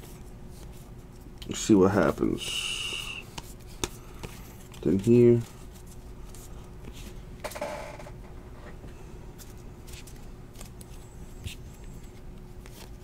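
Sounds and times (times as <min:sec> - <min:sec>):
faint steady hum: 0:00.0 - 0:13.0
cards clicking and rustling: 0:03.3 - 0:07.1.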